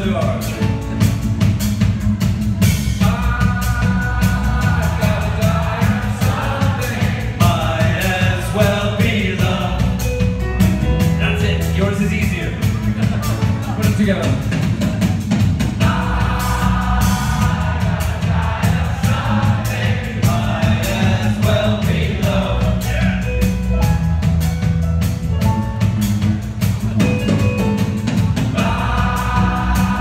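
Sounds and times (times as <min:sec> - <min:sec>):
bass guitar: 0:00.0 - 0:30.0
drum beat: 0:00.0 - 0:30.0
live band playing: 0:00.0 - 0:30.0
person singing: 0:03.0 - 0:10.0.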